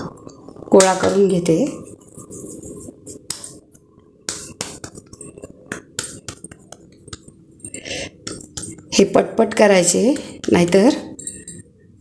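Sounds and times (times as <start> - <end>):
hands patting dough: 4.2 - 7.4.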